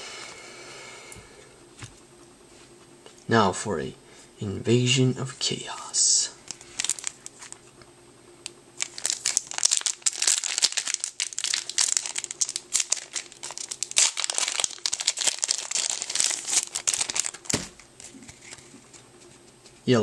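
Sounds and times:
foil wrapper tearing and crinkling: 6.4 - 7.6, 8.8 - 18.7.

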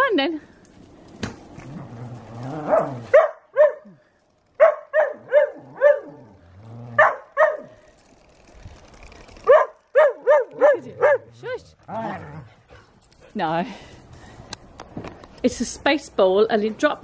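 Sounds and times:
dogs barking high: 2.4 - 7.8, 9.4 - 12.9.

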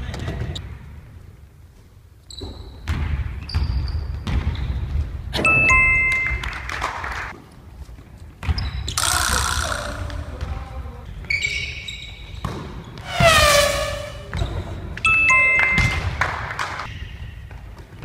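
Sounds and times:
loud burst of noise: 13.0 - 14.4.

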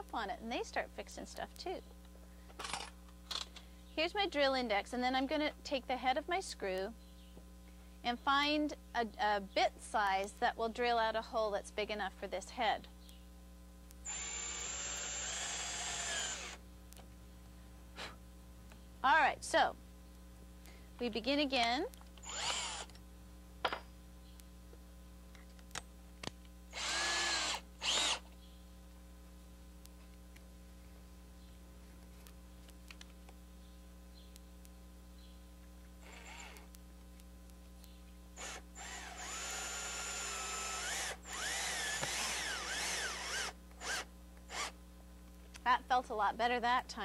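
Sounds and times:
cordless drill whine: 14.0 - 16.6, 22.2 - 23.0, 26.7 - 28.3, 36.0 - 36.7, 38.4 - 44.8.

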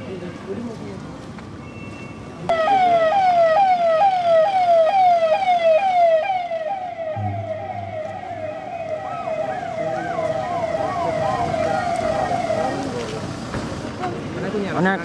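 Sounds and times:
electronic vehicle siren: 2.5 - 13.2.

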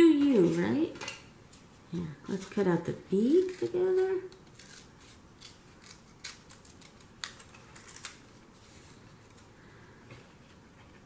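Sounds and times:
scissors snipping paper: 3.2 - 8.2.

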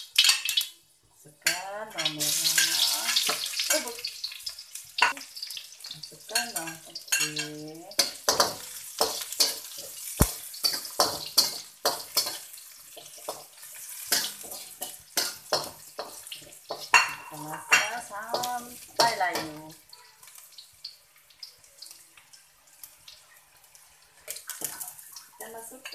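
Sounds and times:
onion sizzling in hot oil: 0.0 - 25.9
metal spatula scraping wok: 1.4 - 4.4, 5.8 - 19.8.

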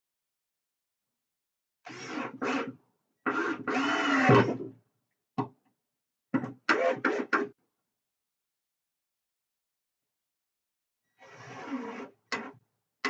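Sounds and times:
cordless drill driving screw: 3.3 - 4.5.

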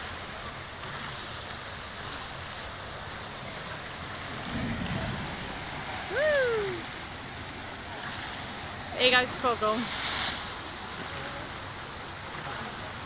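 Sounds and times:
water rushing down slide: 0.0 - 13.0
low rumble: 3.9 - 8.7
person shouting: 6.1 - 6.8.

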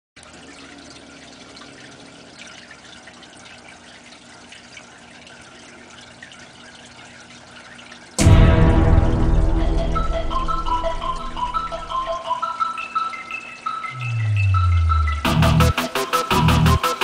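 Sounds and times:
aquarium water trickling: 0.2 - 17.0
loud music: 8.2 - 12.5, 14.0 - 17.0.

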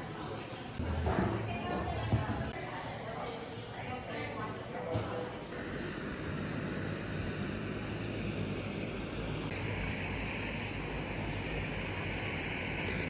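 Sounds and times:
propeller engine drone: 5.6 - 13.0.

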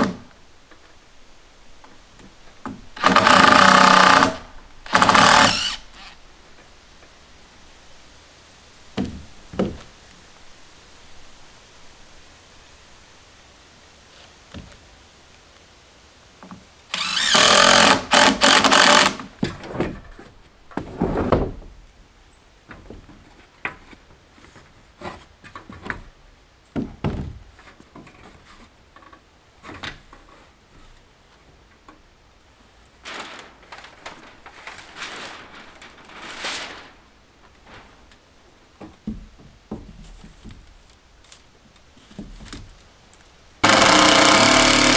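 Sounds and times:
knocks and clunks: 26.7 - 28.3, 38.7 - 40.8
power tool running: 43.6 - 44.9.

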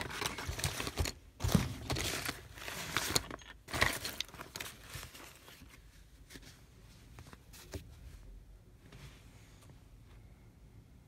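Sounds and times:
rummaging through small objects: 0.0 - 5.8.

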